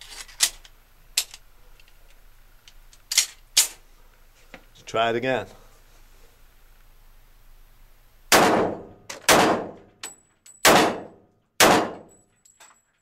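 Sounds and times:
pistol shots echoing: 0:08.3 - 0:09.8, 0:10.6 - 0:12.1.

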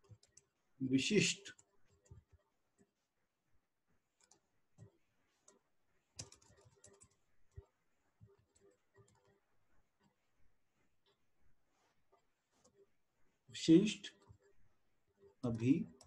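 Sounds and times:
keyboard typing: 0:00.0 - 0:00.6, 0:04.2 - 0:05.6, 0:06.2 - 0:09.4.

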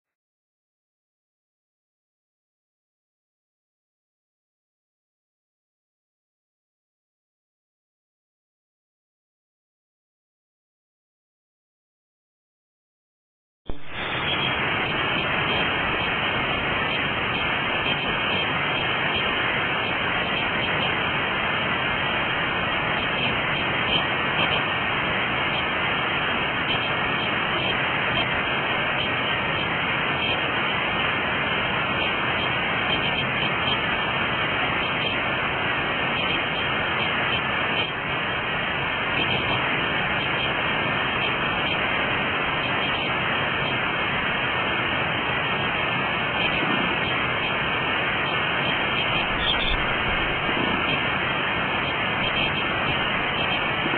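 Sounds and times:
creek water rushing: 0:13.8 - 0:53.9.

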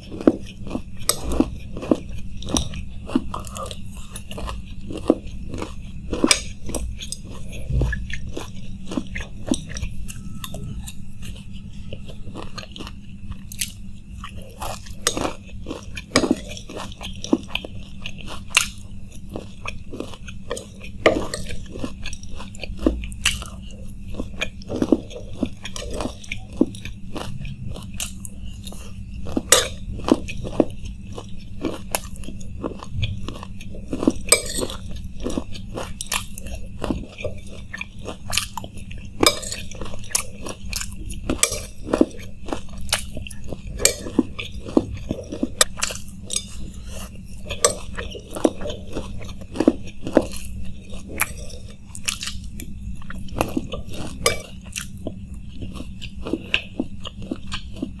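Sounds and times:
crunching and chewing snack: 0:00.0 - 0:58.0.

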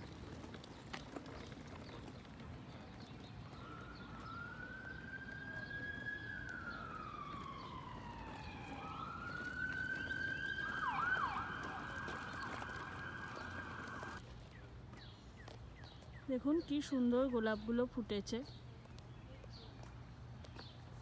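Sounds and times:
emergency siren wailing: 0:03.5 - 0:14.2.

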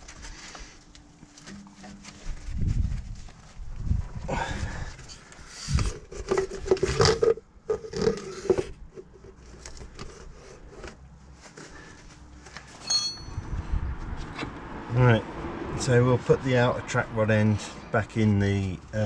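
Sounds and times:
rubber boot rubbing and clicking: 0:05.0 - 0:12.7.

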